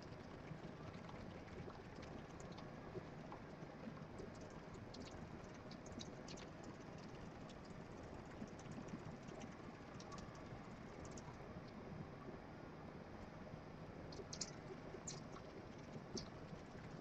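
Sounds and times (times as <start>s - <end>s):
hamster claws scratching and tapping: 14.1s - 17.0s.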